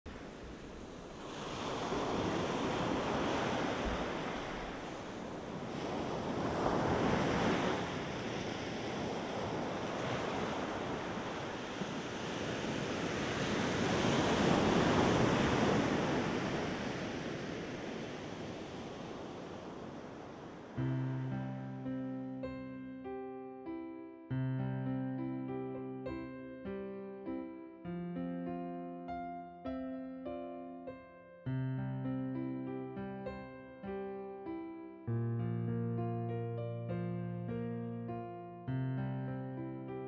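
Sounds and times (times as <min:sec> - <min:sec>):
sea waves breaking on shore: 0:00.1 - 0:22.3.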